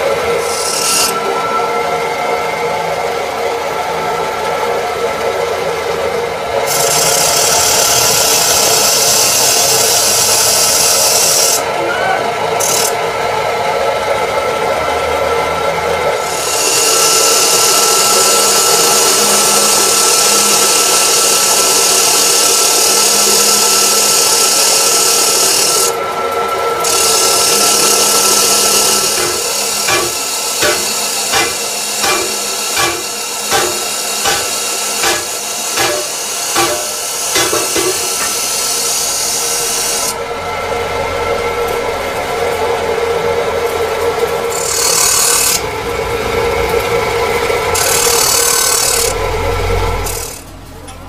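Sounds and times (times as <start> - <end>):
machine motor humming: 12.3 - 51.0
metal cutting hiss: 26.8 - 40.2.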